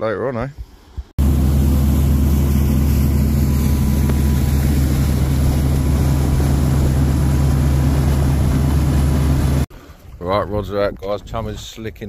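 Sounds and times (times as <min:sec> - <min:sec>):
wake and spray rushing: 0:00.6 - 0:10.2
boat engine droning: 0:01.2 - 0:09.7.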